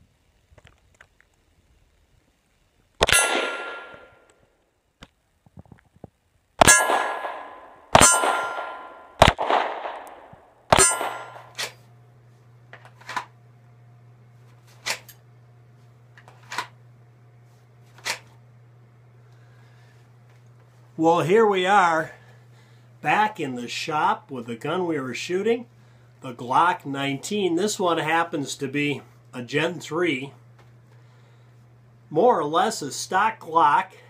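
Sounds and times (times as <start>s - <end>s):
steady low hum: 0.0s - 34.0s
pistol shots: 3.0s - 4.2s, 6.6s - 11.7s
steel target clanging: 3.0s - 4.2s, 6.6s - 9.2s, 10.7s - 11.8s.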